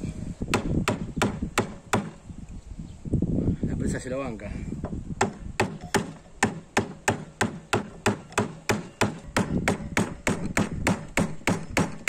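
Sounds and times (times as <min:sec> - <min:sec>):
hammer knocking on wood: 0:00.5 - 0:02.2, 0:04.8 - 0:12.0.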